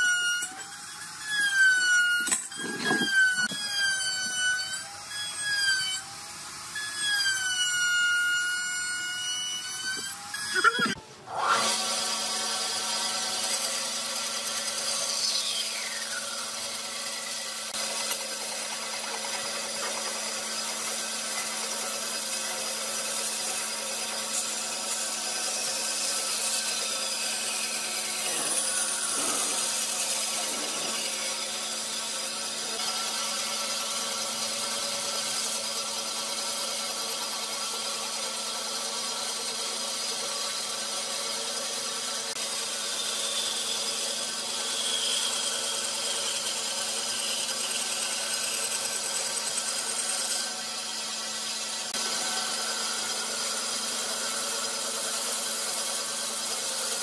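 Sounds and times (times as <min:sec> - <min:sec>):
band saw cutting wood: 0:00.0 - 0:57.0
whines sliding down in pitch: 0:09.2 - 0:11.7
motor hum: 0:27.6 - 0:32.8.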